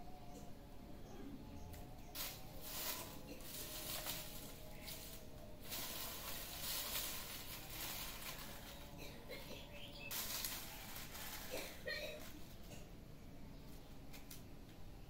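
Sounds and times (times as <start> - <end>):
dry leaves rustling and crackling: 1.7 - 12.8.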